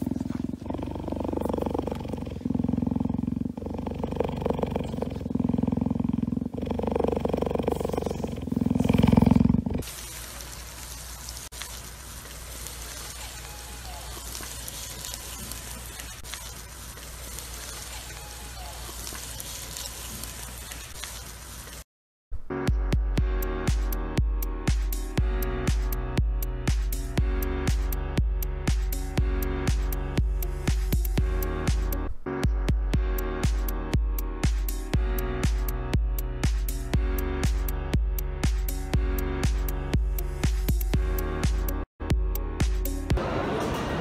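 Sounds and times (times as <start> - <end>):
cheetah purring: 0.0 - 9.9
faint steady hiss: 9.8 - 21.9
electronic music with a beat: 22.5 - 43.2.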